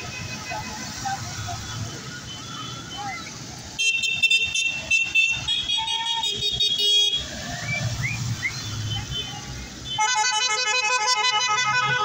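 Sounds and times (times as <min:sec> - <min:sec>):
tractor horn: 0:09.9 - 0:12.0.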